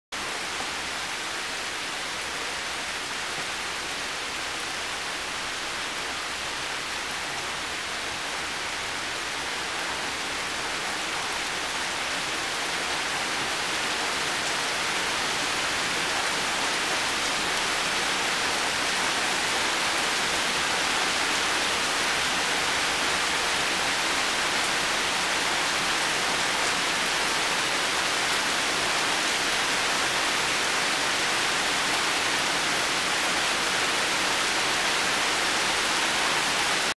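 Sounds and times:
heavy rain on leaves and metal: 0:00.2 - 0:36.9.

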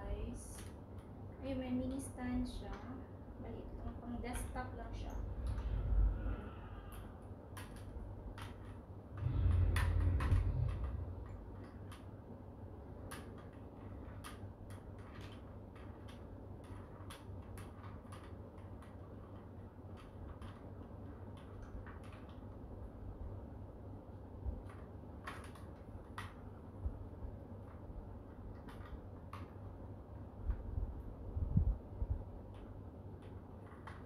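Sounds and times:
low rumble: 0:03.5 - 0:12.0
small plastic clicks: 0:06.9 - 0:12.2, 0:12.9 - 0:22.6, 0:24.6 - 0:26.8, 0:27.6 - 0:29.8, 0:32.2 - 0:34.0.

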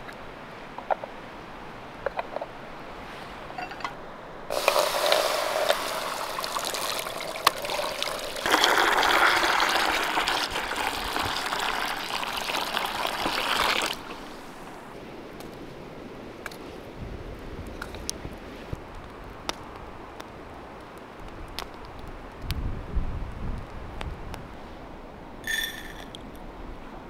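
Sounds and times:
water pouring into metal pan: 0:04.5 - 0:14.3.

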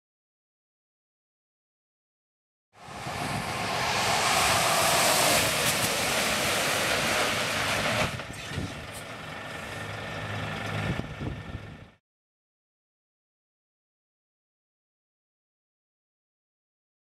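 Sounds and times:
tyres hissing through water: 0:02.8 - 0:09.1
truck engine: 0:02.8 - 0:12.0.

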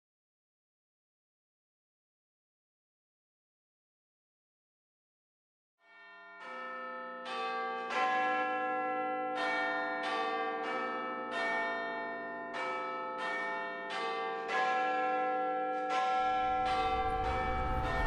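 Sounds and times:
tower bells ringing: 0:05.9 - 0:18.0.

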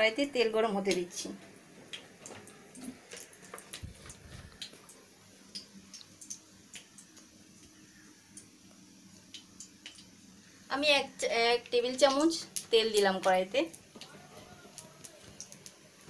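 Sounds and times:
faint small clicks and ticks: 0:01.9 - 0:10.1, 0:12.0 - 0:15.8.

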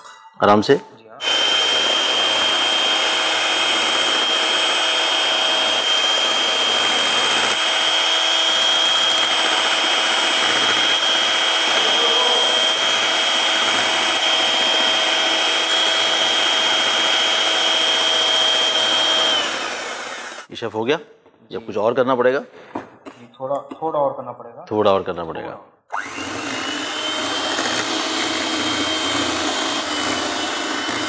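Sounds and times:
electric hand mixer whining: 0:01.2 - 0:20.5, 0:25.9 - 0:31.0.

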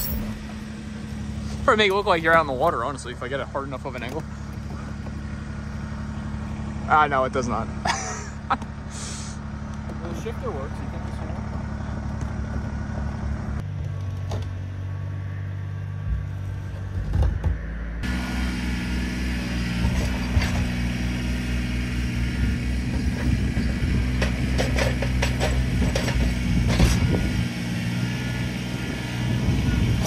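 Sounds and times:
tractor diesel engine running: 0:00.0 - 0:30.0
knocks and rattles: 0:23.0 - 0:27.1.

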